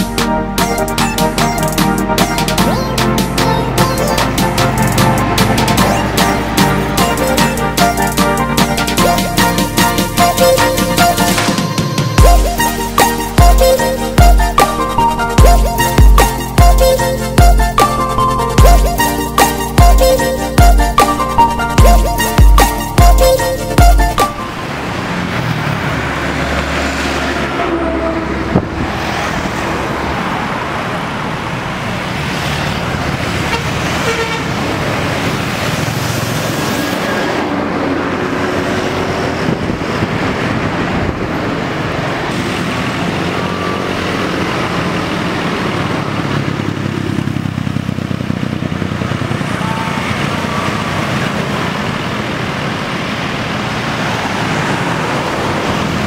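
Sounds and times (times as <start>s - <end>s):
coach engine running: 0.0s - 26.7s
motorcycles passing: 1.2s - 14.2s, 22.4s - 56.0s
vehicle horn toots: 33.5s - 34.6s.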